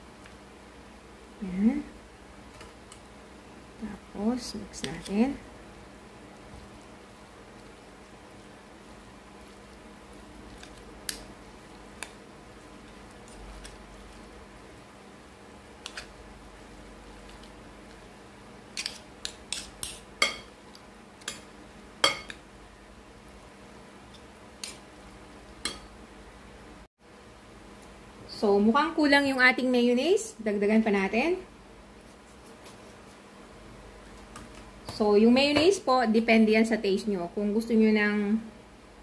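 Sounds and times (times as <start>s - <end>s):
metal spoon clinking on glass bowl: 22.0s - 22.4s.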